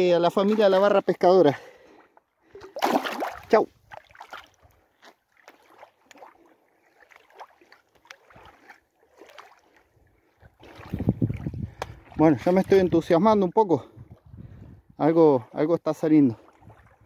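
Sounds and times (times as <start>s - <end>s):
water lapping at shore: 0.0s - 14.6s, 15.2s - 17.0s
fish splashing in water: 2.6s - 9.8s.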